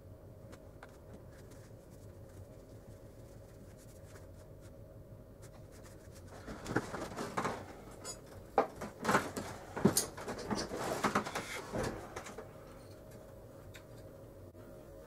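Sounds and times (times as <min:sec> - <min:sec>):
faint low hum: 0:00.0 - 0:15.0
scratchy rustling: 0:00.9 - 0:04.8, 0:05.4 - 0:07.5.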